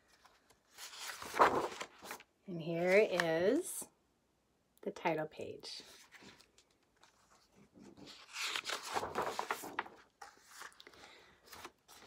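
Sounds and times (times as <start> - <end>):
book pages turning: 0.1 - 3.5, 5.9 - 12.0.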